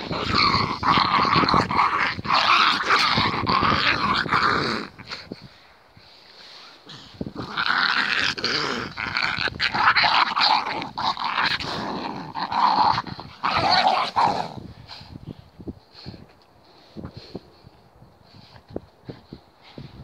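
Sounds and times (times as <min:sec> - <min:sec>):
dogs growling: 0:00.0 - 0:05.4, 0:06.9 - 0:14.7.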